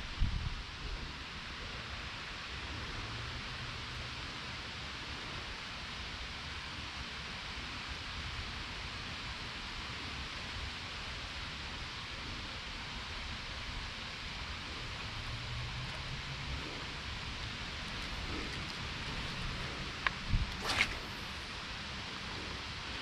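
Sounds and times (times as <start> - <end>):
outdoor background hiss: 0.0 - 23.0.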